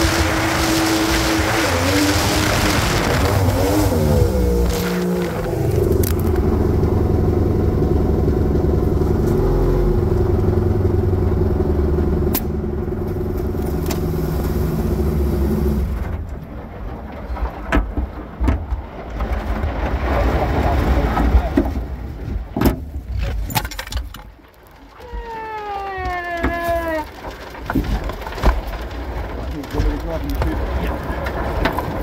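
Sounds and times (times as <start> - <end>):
rushing wind and water: 0.0 - 7.2, 13.8 - 16.4
boat engine running hard: 0.0 - 16.0.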